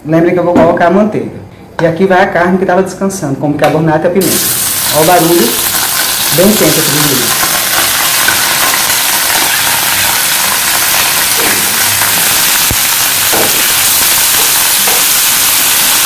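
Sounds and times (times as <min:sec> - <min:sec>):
meat sizzling in a frying pan: 0:04.2 - 0:16.0.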